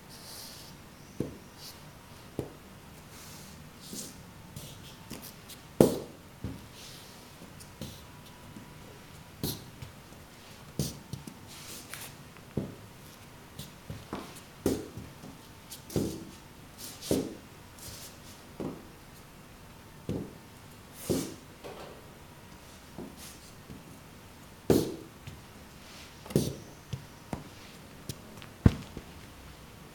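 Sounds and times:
boot footsteps on tile floor: 18.6 - 18.9, 26.3 - 29.4.

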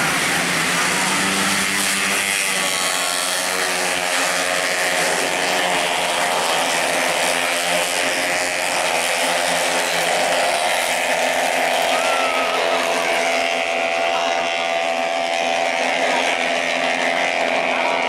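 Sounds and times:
scooter engines racing: 0.0 - 18.0.

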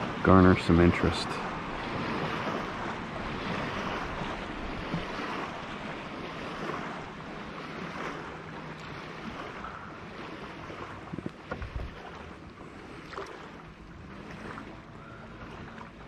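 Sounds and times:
water washing along a hull: 0.0 - 16.0
wind on the microphone: 1.4 - 8.4, 9.0 - 12.4.

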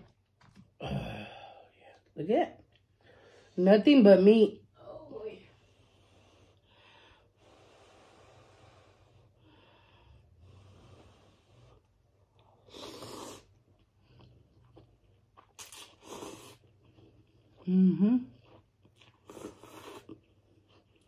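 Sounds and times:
noodles slurping: 10.4 - 17.6
faint mouth sounds: 17.4 - 20.2.

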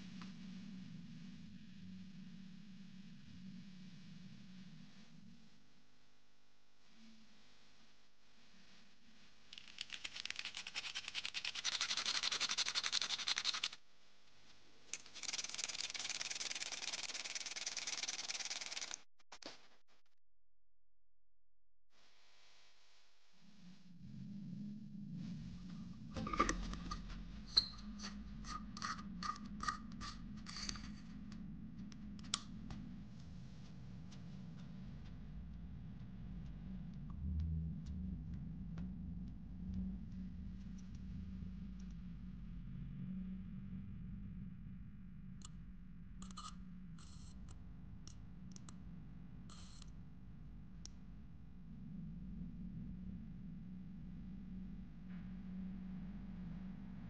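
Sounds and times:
wire scraping circuit board: 15.0 - 19.0, 26.1 - 31.1.

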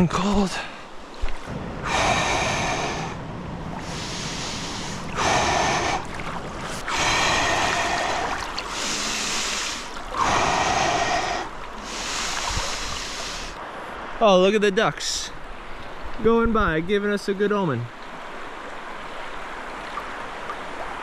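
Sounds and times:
river water sloshing: 0.8 - 14.2, 17.9 - 21.0
man breathing forcefully: 1.8 - 3.2, 3.8 - 13.6.

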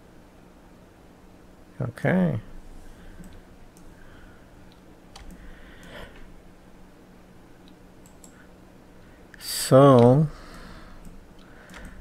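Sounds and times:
low electrical hum: 0.0 - 12.0
computer mouse clicks: 3.2 - 3.9, 4.7 - 6.0, 7.6 - 8.4, 9.9 - 12.0.

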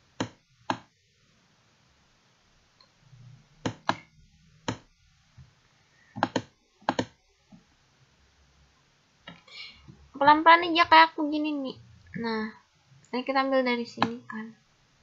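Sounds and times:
mouse button clicking: 14.0 - 14.2.

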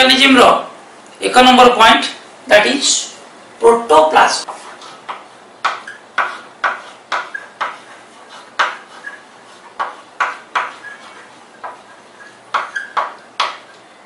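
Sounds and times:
chalk tapping on blackboard: 4.4 - 13.8.

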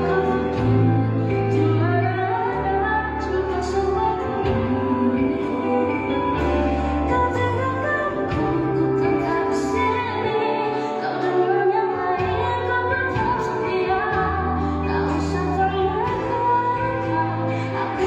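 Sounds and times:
deep sustained bass notes: 0.0 - 10.6
band with electric guitar: 0.0 - 18.0
woman singing into microphone: 0.0 - 18.0.

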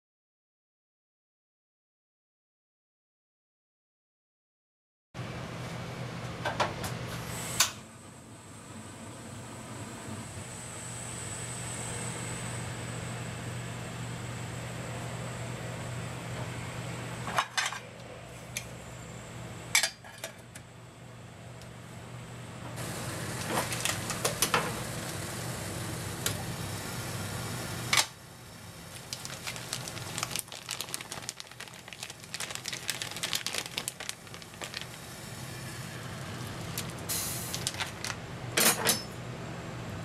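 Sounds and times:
gas burner hissing: 7.2 - 7.8, 34.9 - 37.9.

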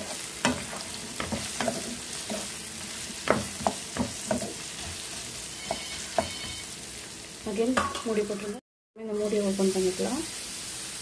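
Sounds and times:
spatula scraping and knocking pan: 0.0 - 6.6
food sizzling in oil: 0.0 - 11.0.

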